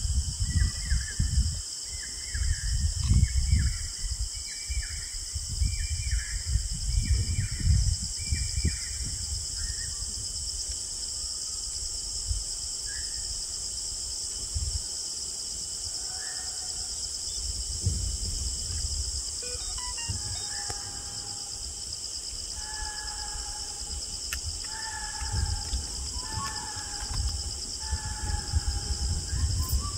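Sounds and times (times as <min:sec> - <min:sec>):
insect chorus: 0:00.0 - 0:29.9
low microphone rumbles: 0:17.5 - 0:21.8, 0:23.8 - 0:29.9
whistled bird notes: 0:27.9 - 0:29.9.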